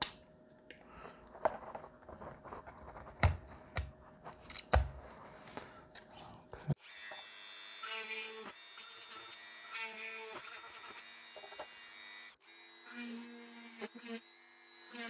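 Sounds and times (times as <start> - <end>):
rotary tool motor whine: 6.8 - 15.0.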